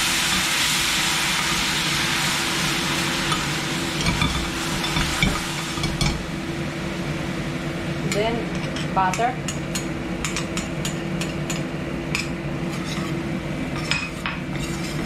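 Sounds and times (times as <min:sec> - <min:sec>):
sauce sizzling in a frying pan: 0:00.0 - 0:09.1
metal spatula scraping a pan: 0:12.7 - 0:13.2, 0:13.8 - 0:15.0.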